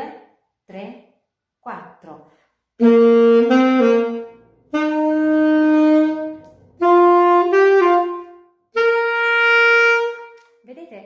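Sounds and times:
alto saxophone playing: 2.8 - 10.5.

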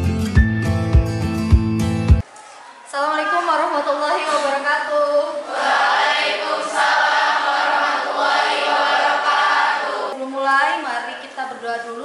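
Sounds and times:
children chanting in unison: 5.4 - 10.2.

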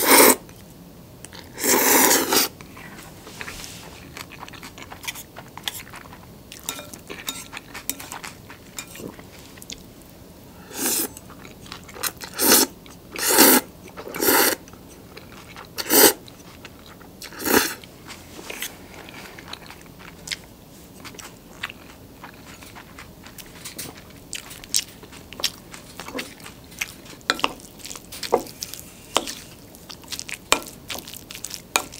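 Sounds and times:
woman slurping noodles: 0.0 - 0.4, 1.6 - 2.5, 14.2 - 14.6
woman chewing: 1.3 - 9.9, 10.7 - 31.9.

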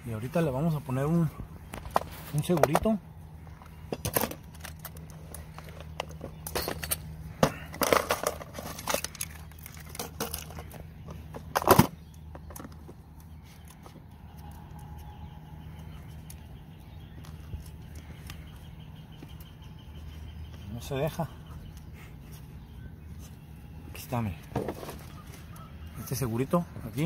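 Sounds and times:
low steady hum: 0.0 - 27.0
metal tackle rattling in plastic box: 5.7 - 10.8.

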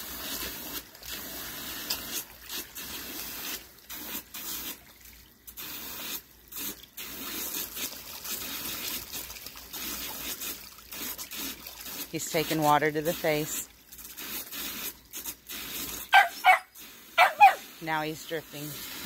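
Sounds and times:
water running from garden hose: 0.0 - 19.0.

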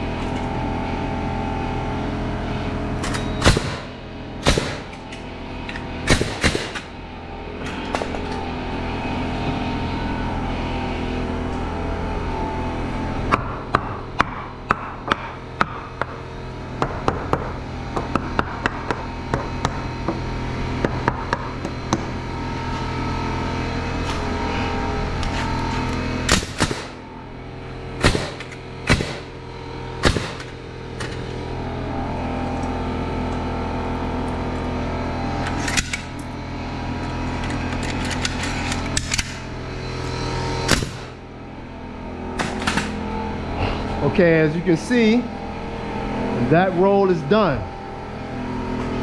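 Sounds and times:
steady motor hum: 0.0 - 49.0
nail gun shots: 3.0 - 5.0, 6.0 - 6.9, 26.3 - 27.0, 28.0 - 29.3, 30.0 - 30.6, 40.7 - 41.2, 42.4 - 42.9.

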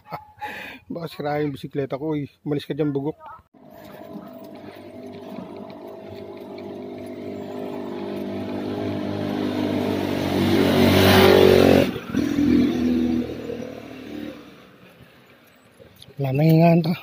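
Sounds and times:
motorcycle engine passing: 3.6 - 15.8.

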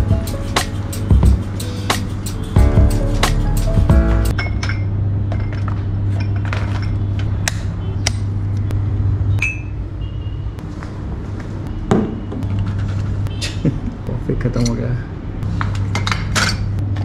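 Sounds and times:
ringing clink of mug: 9.4 - 9.8.

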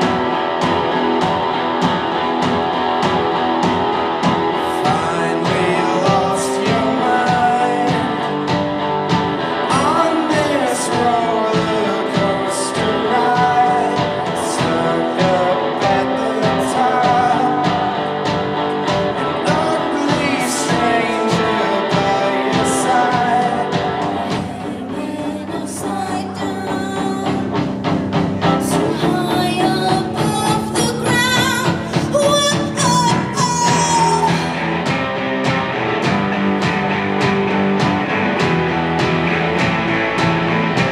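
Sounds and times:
live punk rock band: 0.0 - 40.9
sung vocals: 3.7 - 35.6.

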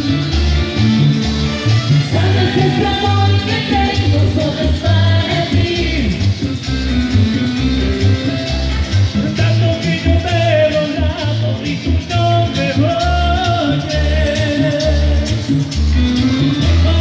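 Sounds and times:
latin dance music: 0.0 - 17.0
high voice singing: 1.9 - 6.4.

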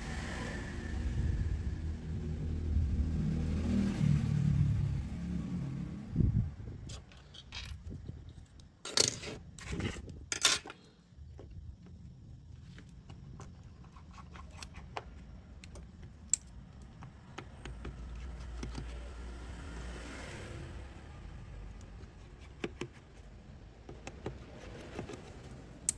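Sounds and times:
metal tools clattering on wooden desk: 8.8 - 9.4, 10.3 - 10.8.

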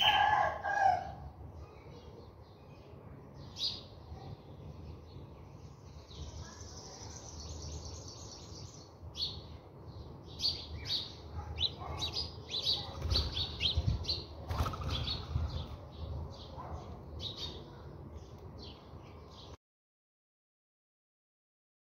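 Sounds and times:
sparrows chirping: 0.0 - 19.6
wings fluttering: 12.8 - 15.8.

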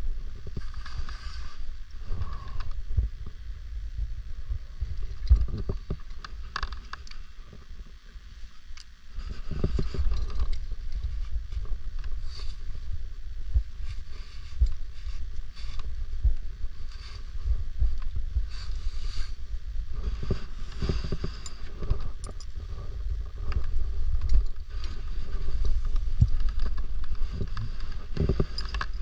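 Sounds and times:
rustling and scraping: 0.0 - 2.8, 9.2 - 29.0.

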